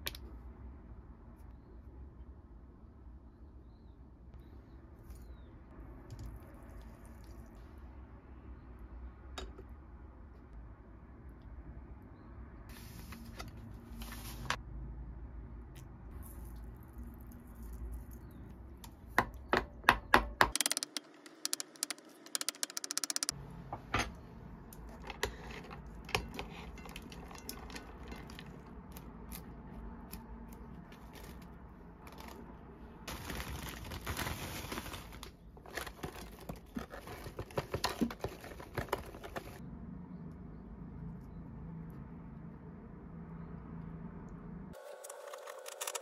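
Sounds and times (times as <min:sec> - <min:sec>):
rustling of food handling: 0:24.8 - 0:39.6.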